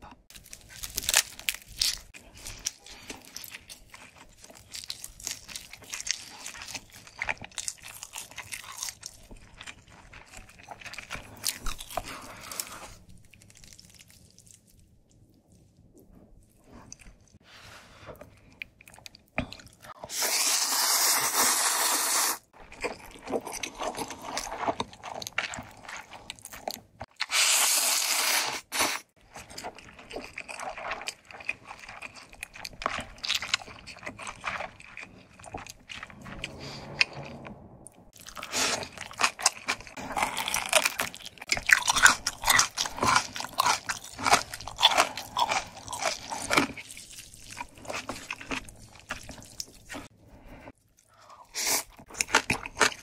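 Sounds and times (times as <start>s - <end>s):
crunchy bites and chewing: 0.3s - 14.8s, 22.6s - 37.3s, 38.1s - 50.1s, 51.0s - 53.0s
wet chewing: 0.3s - 17.4s, 22.5s - 37.4s, 38.1s - 53.0s
noodles slurped: 20.0s - 26.4s.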